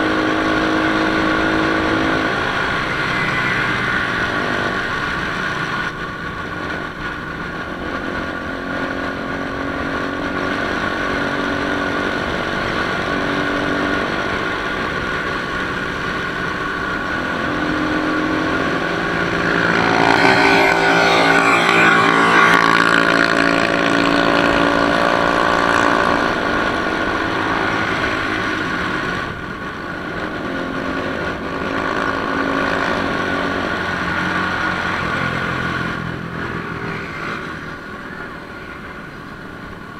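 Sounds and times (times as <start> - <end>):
rushing noise: 0.0 - 30.8
motorcycle engine running: 0.0 - 38.2.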